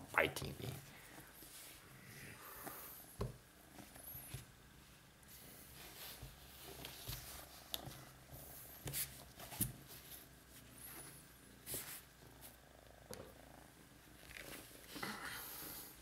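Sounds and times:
soft rustles: 0.8s - 12.6s
cat purring: 9.8s - 16.0s.

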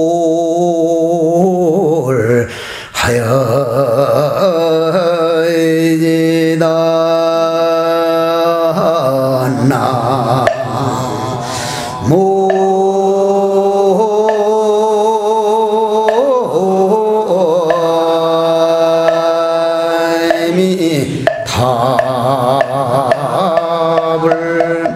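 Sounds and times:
person chanting long notes: 6.2s - 24.9s.

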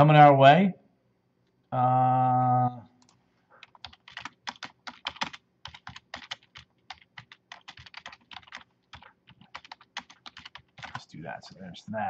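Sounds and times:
typing on a computer keyboard: 3.0s - 11.0s.

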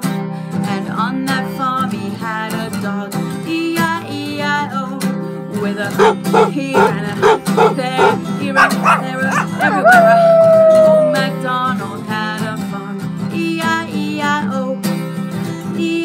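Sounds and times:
woman howling: 6.0s - 11.4s
woman imitating dog woofs: 6.0s - 11.4s
strummed acoustic guitar: 11.2s - 16.0s.

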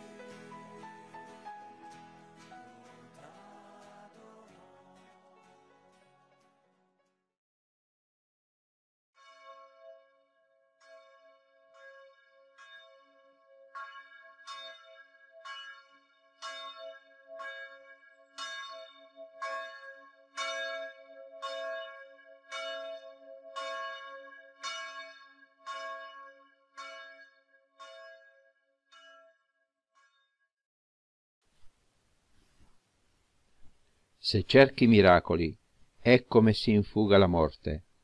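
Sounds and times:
church bell tolling: 9.2s - 28.3s.

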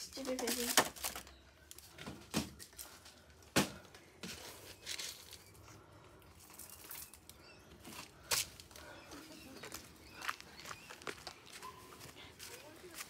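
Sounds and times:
plastic rustling: 0.0s - 5.6s.

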